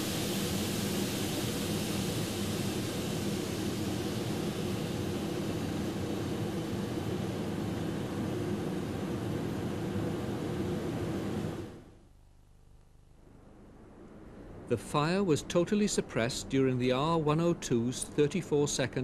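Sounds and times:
machinery rushing hum: 0:00.0 - 0:12.0.

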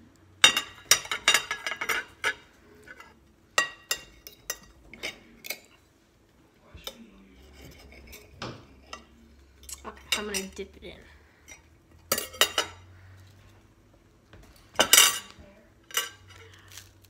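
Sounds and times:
cutlery clinking on a plate: 0:00.4 - 0:05.8, 0:11.5 - 0:12.9, 0:14.7 - 0:16.5.

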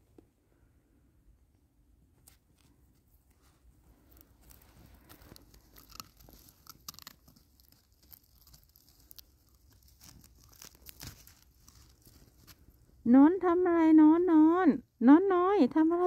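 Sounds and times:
puppy gnawing on twig: 0:03.3 - 0:13.0.

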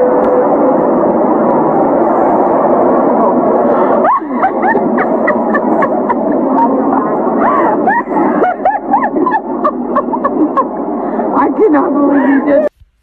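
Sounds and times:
woman laughing: 0:03.9 - 0:10.8, 0:12.0 - 0:12.8
woman talking excitedly: 0:11.4 - 0:12.7.

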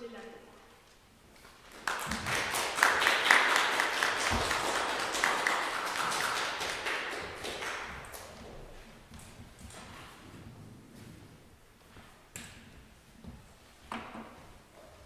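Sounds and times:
audience applauding: 0:01.5 - 0:08.4.

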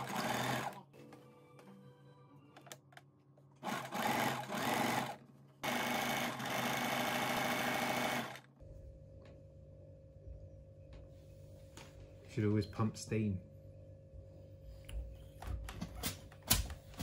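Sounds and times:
electric sewing machine stitching: 0:00.0 - 0:00.9, 0:03.6 - 0:08.5
low steady hum: 0:08.4 - 0:17.0.

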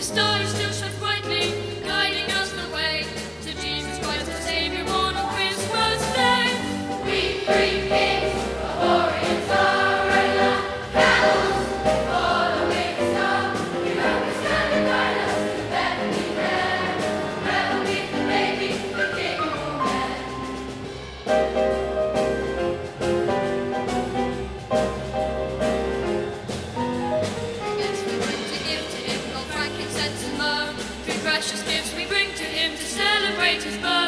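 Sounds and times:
children's choir singing: 0:05.8 - 0:20.7.

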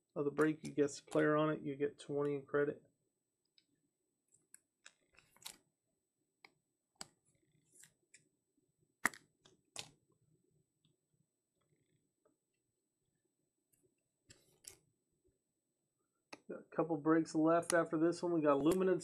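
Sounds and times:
cards clicking and scraping: 0:04.4 - 0:05.6, 0:14.3 - 0:14.8.

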